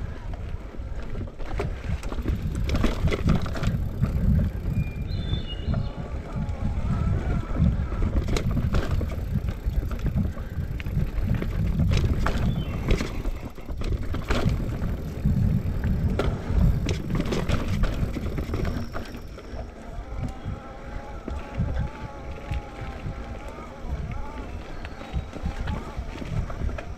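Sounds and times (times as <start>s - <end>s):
wind rumble on microphone: 0.0s - 26.9s
bike knocks and rattles: 1.0s - 6.4s, 7.1s - 19.6s
tyre noise over dirt: 1.4s - 19.3s.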